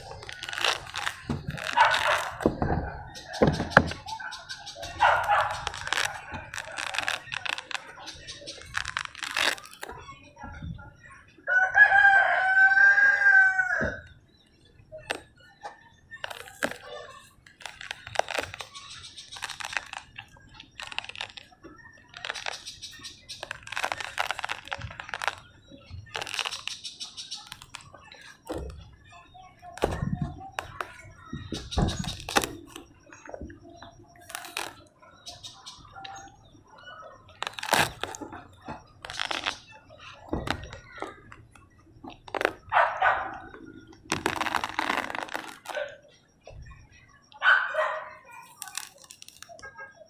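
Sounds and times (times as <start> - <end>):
fruit rind tearing: 0.0 - 10.1, 14.9 - 15.5, 16.1 - 28.8, 29.6 - 33.4, 34.2 - 35.9, 37.3 - 42.7, 43.4 - 45.8, 48.4 - 49.7
rooster crowing: 11.5 - 14.0.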